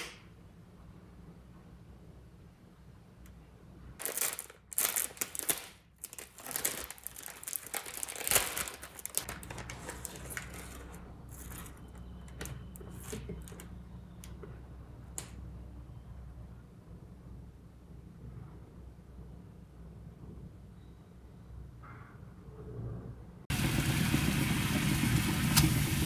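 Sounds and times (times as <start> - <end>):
plastic packet crinkling: 4.0 - 11.9.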